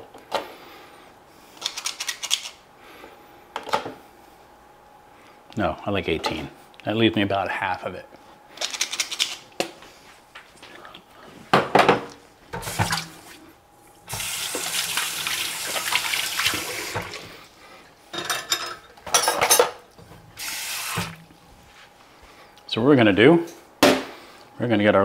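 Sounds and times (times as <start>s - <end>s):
kitchen tap running: 12.6s - 13.3s, 14.0s - 17.3s, 20.4s - 21.3s.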